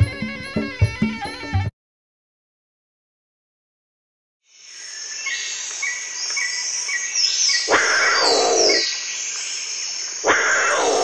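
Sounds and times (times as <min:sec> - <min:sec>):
birds chirping with falling whistles: 0:04.6 - 0:11.0
big cat roaring: 0:07.7 - 0:08.8, 0:10.3 - 0:11.0.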